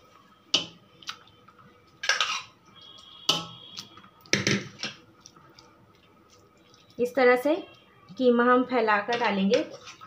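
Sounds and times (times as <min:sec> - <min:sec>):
spoon scraping pot: 0:02.0 - 0:02.5, 0:09.1 - 0:10.0.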